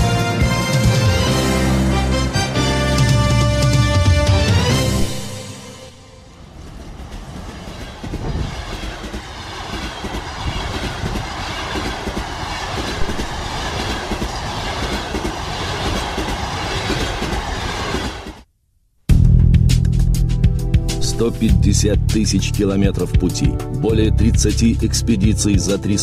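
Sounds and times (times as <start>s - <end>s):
steady rushing noise: 4.7s - 18.5s.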